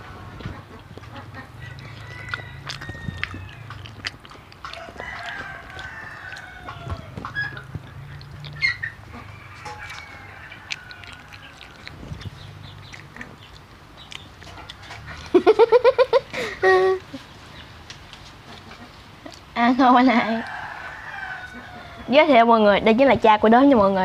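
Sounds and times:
chickens clucking: 0:00.0 - 0:22.5
rooster crowing: 0:01.6 - 0:03.7, 0:04.7 - 0:07.5, 0:09.1 - 0:11.9, 0:20.3 - 0:22.3.

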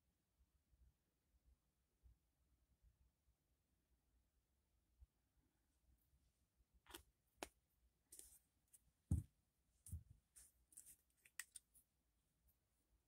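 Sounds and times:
dull knock on tabletop: 0:09.1 - 0:09.3.

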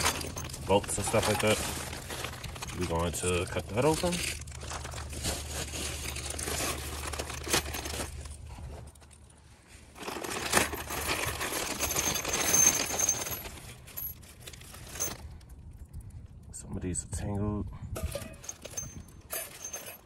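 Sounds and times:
metal bolts clinking: 0:00.0 - 0:02.8, 0:10.3 - 0:15.2, 0:18.0 - 0:20.0
plastic packaging crinkling: 0:00.0 - 0:08.3.

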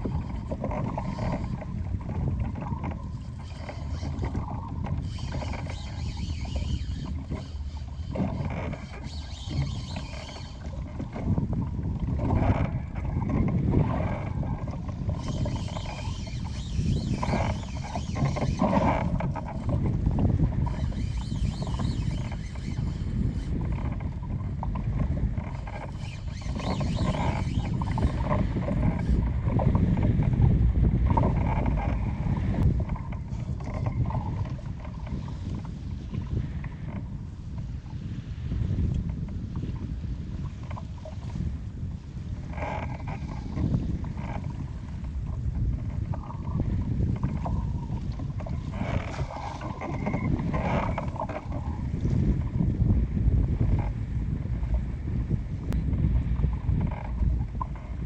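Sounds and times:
water rushing along boat hull: 0:00.0 - 0:58.0
wind rumbling on microphone: 0:00.0 - 0:58.0.

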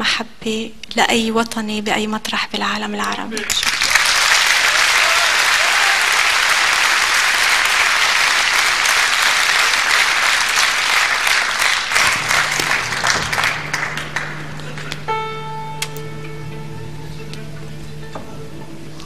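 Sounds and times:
audience applauding: 0:03.4 - 0:15.2.

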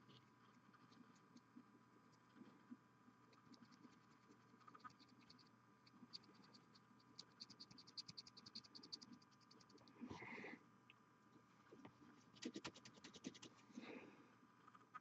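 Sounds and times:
paint brush ticking: 0:03.2 - 0:10.0, 0:12.3 - 0:13.6.

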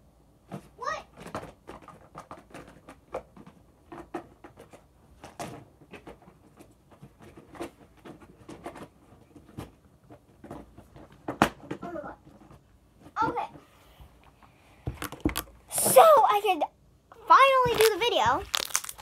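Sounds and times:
plastic containers clattering: 0:00.5 - 0:13.6, 0:17.5 - 0:19.0.

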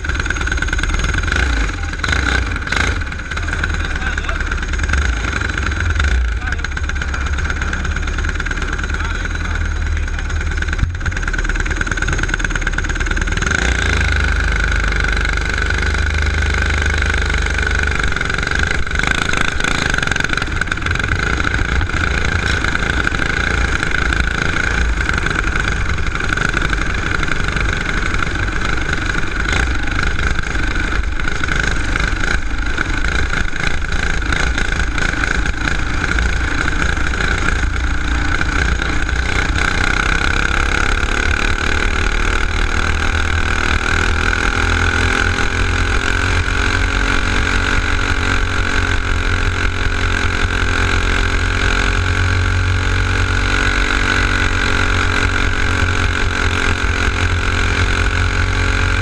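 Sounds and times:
kart engine running: 0:00.0 - 0:59.0.

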